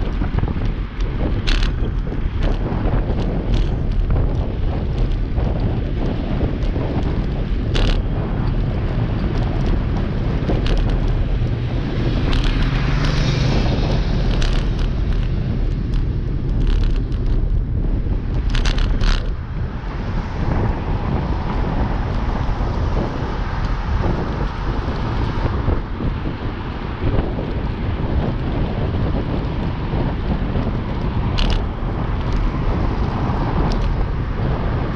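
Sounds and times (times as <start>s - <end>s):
sharp clicks or rattles: 0.0s - 5.7s, 6.6s - 17.6s, 18.2s - 19.4s, 31.3s - 32.5s, 33.5s - 34.0s
traffic noise: 0.0s - 34.9s
wind buffeting microphone: 0.0s - 34.9s.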